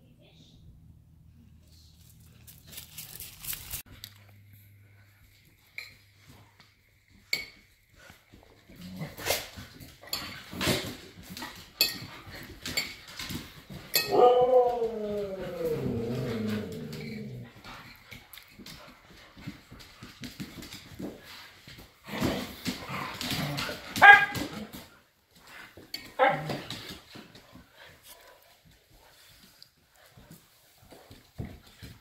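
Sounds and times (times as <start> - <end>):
dogs scuffling on hard floor: 5.1 - 32.0
dog howl falling in pitch: 14.1 - 17.2.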